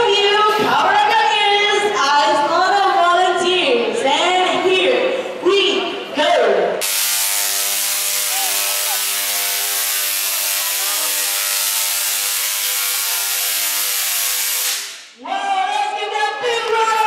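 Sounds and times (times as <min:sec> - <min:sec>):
tesla coil buzzing crackle: 0:06.8 - 0:15.1.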